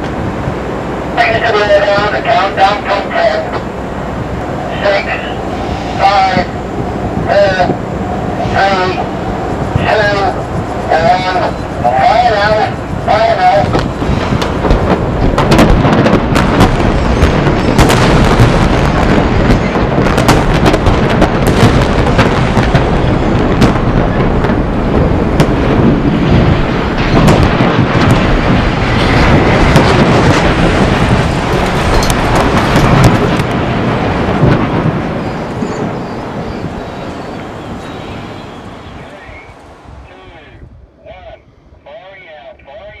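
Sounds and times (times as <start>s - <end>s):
concrete collapsing rumble: 9.7s - 36.8s
sharp blast cracks: 10.9s - 35.3s.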